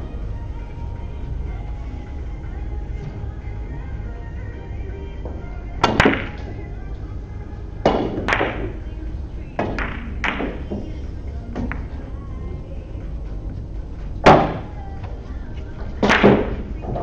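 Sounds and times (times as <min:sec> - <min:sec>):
billiard balls clacking: 0:05.1 - 0:17.0
cue striking ball: 0:05.3 - 0:06.7, 0:07.8 - 0:12.2, 0:14.2 - 0:14.8, 0:15.8 - 0:17.0.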